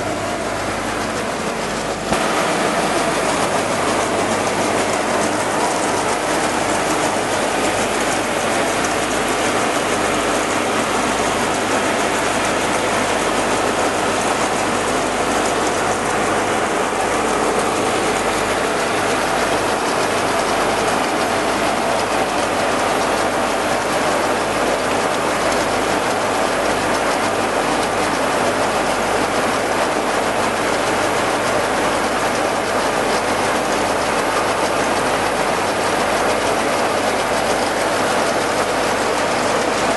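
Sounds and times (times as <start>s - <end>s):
grain augers rattling: 0.0s - 39.9s.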